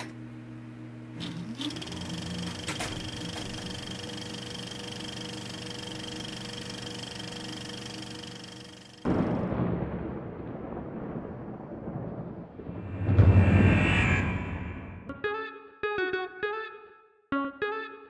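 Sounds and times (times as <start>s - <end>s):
film projector whirring: 1.0s - 9.1s
loud boom: 9.1s - 15.1s.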